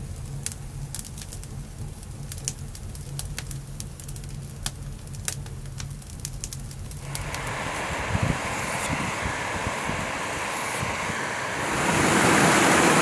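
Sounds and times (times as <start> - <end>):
low fire rumble: 0.0 - 13.0
campfire crackling and popping: 0.2 - 7.5.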